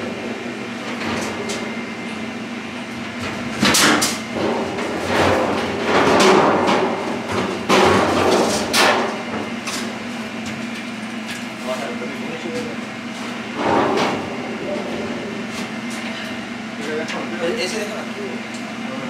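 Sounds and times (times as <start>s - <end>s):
steady low hum: 0.0s - 19.0s
sharp knocks and bangs: 3.2s - 9.5s.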